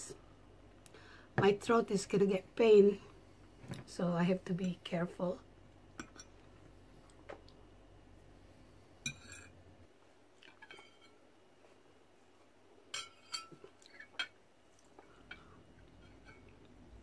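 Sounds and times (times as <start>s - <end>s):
cutlery clinking against dishes: 12.9s - 14.4s.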